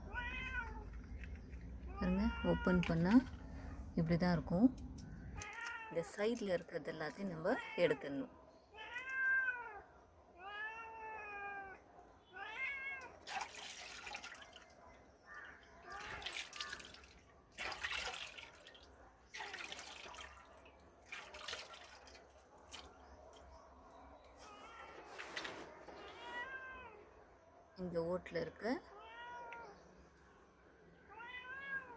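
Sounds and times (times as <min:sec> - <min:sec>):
cat meowing: 0:00.0 - 0:00.9, 0:07.6 - 0:09.8, 0:10.4 - 0:13.2, 0:26.0 - 0:27.1, 0:28.9 - 0:29.9, 0:31.1 - 0:31.9
water splashing in steel bowl: 0:13.2 - 0:14.8, 0:15.8 - 0:23.0.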